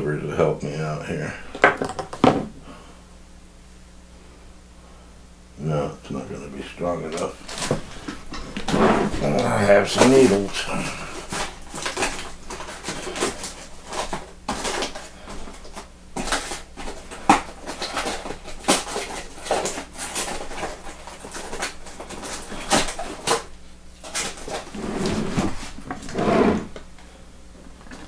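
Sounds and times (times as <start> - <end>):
small things being handled: 7.1 - 26.2.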